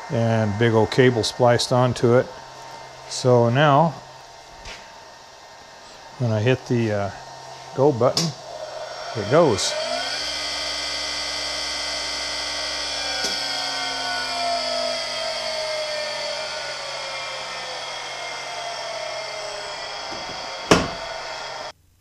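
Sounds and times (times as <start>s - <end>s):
grinder motor whining: 0.0s - 21.8s
sharp knock: 20.7s - 21.0s.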